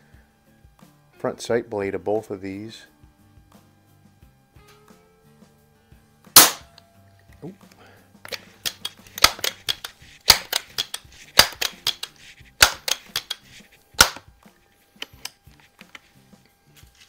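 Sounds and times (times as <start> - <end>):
air rifle pump lever clacking: 8.3 - 14.3, 15.0 - 16.0.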